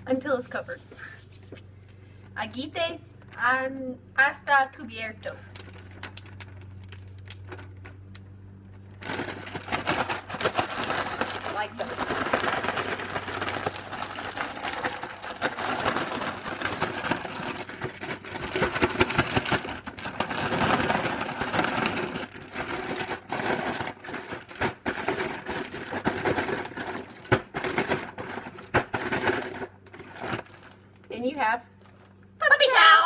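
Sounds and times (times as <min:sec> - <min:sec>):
cereal rattling in plastic bag: 0:05.5 - 0:08.0, 0:09.0 - 0:31.1.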